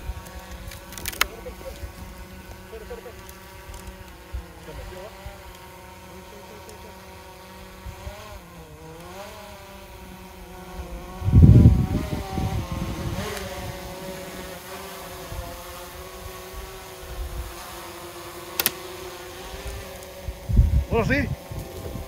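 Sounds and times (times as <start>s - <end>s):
drone propellers humming: 0.0s - 22.0s
sharp click: 18.6s - 18.8s.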